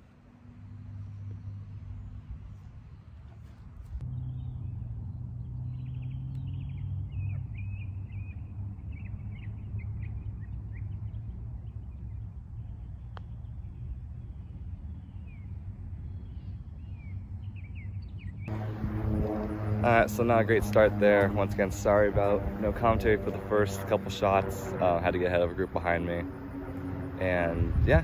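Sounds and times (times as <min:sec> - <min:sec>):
steady low rumble: 0:00.0 - 0:28.0
small birds chirping: 0:00.7 - 0:18.6.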